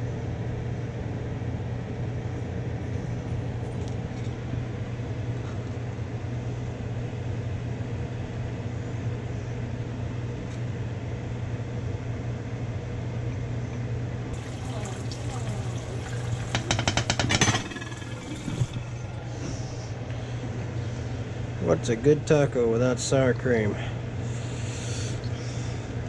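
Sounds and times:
droning motor hum: 0:01.6 - 0:26.0.

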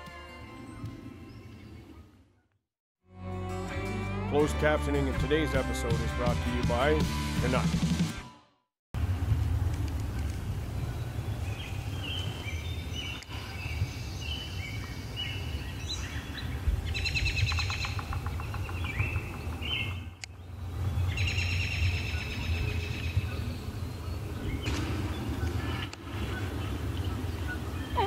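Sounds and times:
steady low rumble: 0:09.0 - 0:14.0
songbirds singing: 0:10.4 - 0:28.0.

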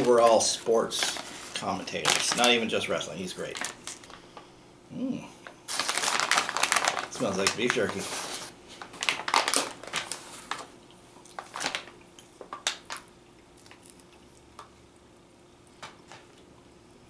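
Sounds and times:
plastic bag crinkling: 0:00.0 - 0:04.2, 0:05.7 - 0:14.1.

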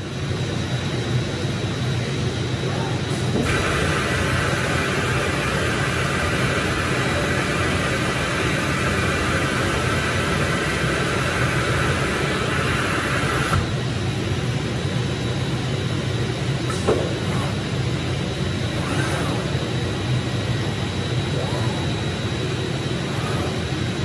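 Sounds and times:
high machine hiss: 0:02.3 - 0:14.6
cutting machine drone: 0:03.3 - 0:14.1.

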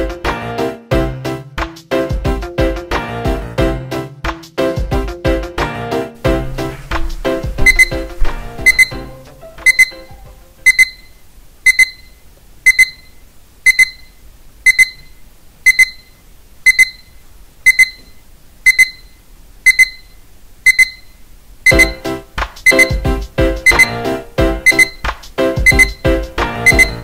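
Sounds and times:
music: 0:00.0 - 0:10.8, 0:21.7 - 0:27.0
alarm clock double beeps: 0:07.6 - 0:22.1, 0:22.7 - 0:23.0, 0:23.6 - 0:24.0, 0:24.6 - 0:27.0.

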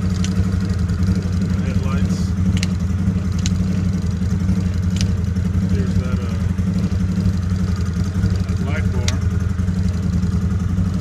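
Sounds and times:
engine idling: 0:00.0 - 0:11.0.

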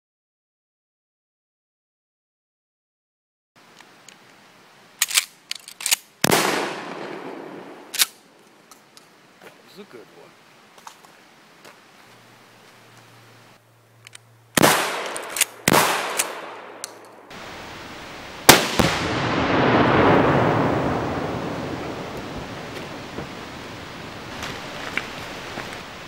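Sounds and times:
gunshots: 0:06.2 - 0:08.1, 0:14.6 - 0:17.0, 0:18.4 - 0:20.9
explosive target blast: 0:18.4 - 0:22.2.

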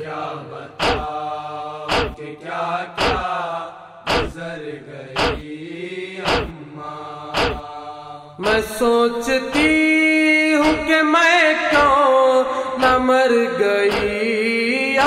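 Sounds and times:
sharp slapping beat: 0:00.8 - 0:01.2, 0:01.9 - 0:02.2, 0:03.0 - 0:03.4, 0:04.1 - 0:04.4, 0:05.2 - 0:05.5, 0:06.2 - 0:06.6, 0:07.4 - 0:07.7, 0:08.4 - 0:08.7, 0:09.6 - 0:09.8, 0:10.6 - 0:11.0, 0:11.7 - 0:12.0, 0:12.8 - 0:13.0, 0:13.9 - 0:14.2
solo voice chanting lament: 0:07.9 - 0:15.0.

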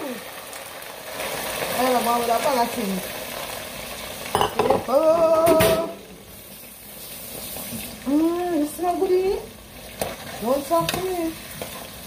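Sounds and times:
food sizzling in a pot: 0:00.0 - 0:12.0
pot lid and utensils clattering: 0:04.3 - 0:06.0.

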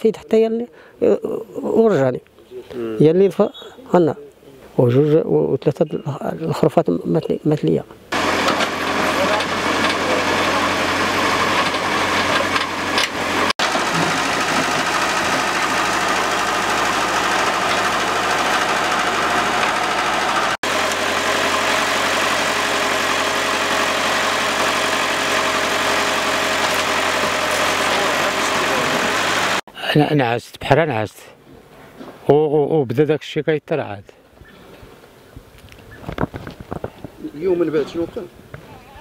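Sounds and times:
diesel engine running: 0:08.1 - 0:29.6.

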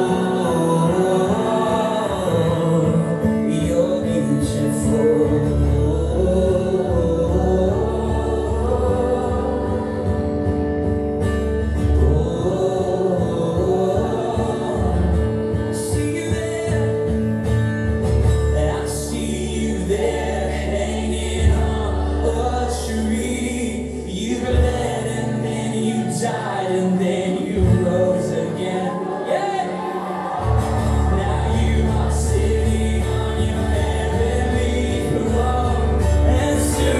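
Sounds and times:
voices singing: 0:00.0 - 0:11.0, 0:18.5 - 0:36.9
church worship music: 0:00.0 - 0:36.9.

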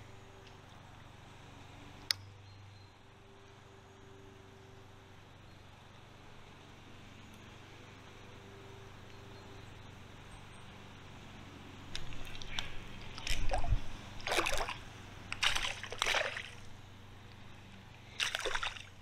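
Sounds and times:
fish splashing at water surface: 0:12.3 - 0:16.7, 0:18.1 - 0:19.0.

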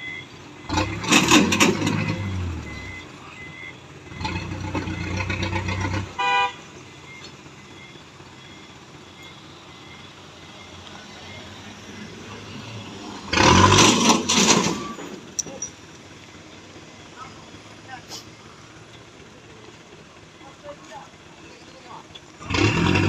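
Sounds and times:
faint high beeps: 0:00.0 - 0:00.8, 0:02.0 - 0:05.2, 0:06.8 - 0:12.4
vehicles passing: 0:00.0 - 0:23.0.

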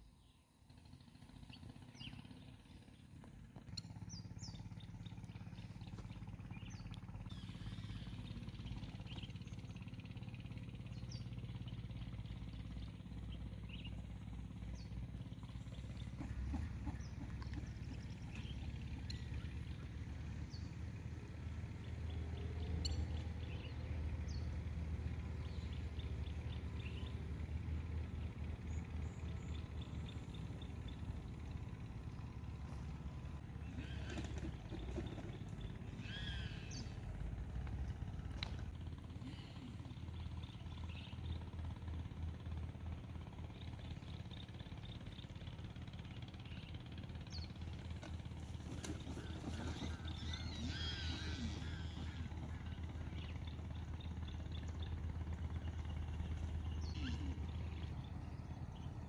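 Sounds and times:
engine running: 0:00.0 - 0:59.0
small birds chirping: 0:00.0 - 0:59.0
downward-sweeping bird calls: 0:01.5 - 0:10.1, 0:32.1 - 0:37.2, 0:48.7 - 0:59.0.

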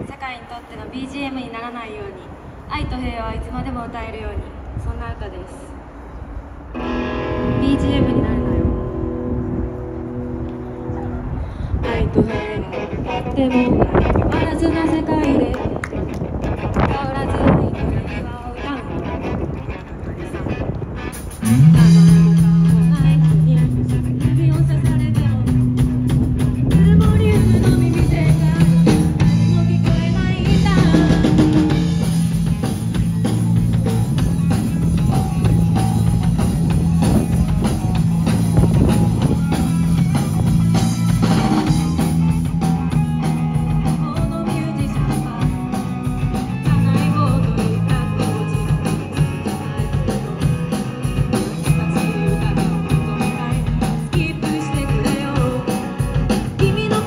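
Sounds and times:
electric guitars sustained notes: 0:06.6 - 0:57.0
live rock band playing: 0:06.6 - 0:57.0
drum kit beating: 0:21.0 - 0:57.0.

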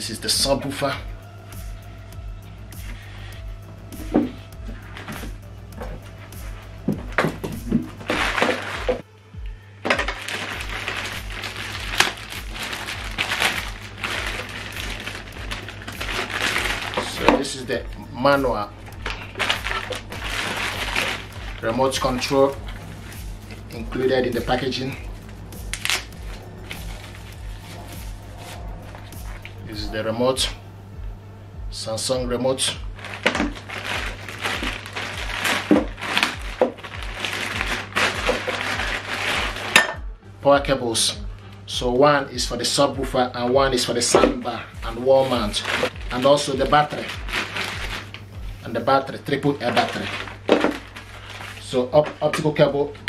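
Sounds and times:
plastic bag crinkling: 0:04.0 - 0:09.1, 0:09.8 - 0:29.6, 0:32.9 - 0:40.0, 0:43.9 - 0:53.0.

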